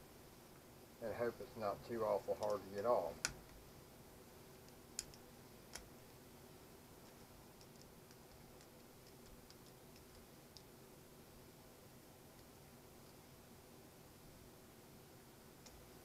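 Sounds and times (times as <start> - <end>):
faint ticks: 7.0 - 10.7.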